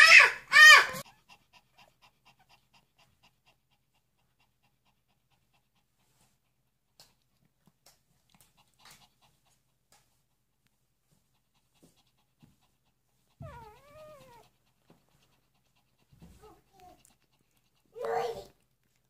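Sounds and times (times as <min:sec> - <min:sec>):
puppy whining: 0:00.0 - 0:03.6, 0:13.3 - 0:19.0
faint soft clicks of nursing: 0:06.2 - 0:12.9, 0:13.7 - 0:19.0
faint puppy squeak: 0:13.4 - 0:14.5.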